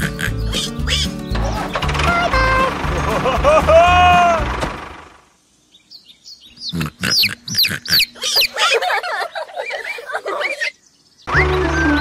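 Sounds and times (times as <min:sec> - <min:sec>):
pig oinks and squeals: 0:00.0 - 0:01.2, 0:06.6 - 0:08.8
chick peeps: 0:06.6 - 0:08.8.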